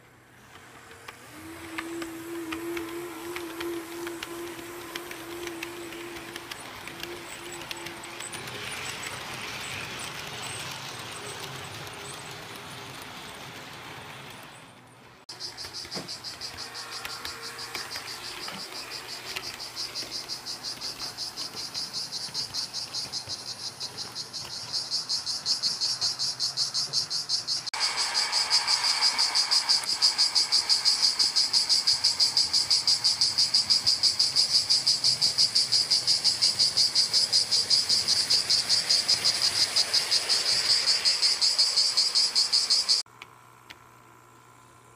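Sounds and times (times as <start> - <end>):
model trains rolling on track: 0.0 - 43.0
high pulsing chirp: 15.3 - 43.0.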